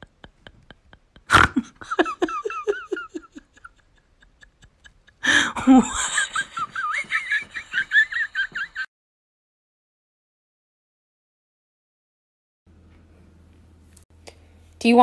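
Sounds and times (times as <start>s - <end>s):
person laughing: 0.0s - 8.9s.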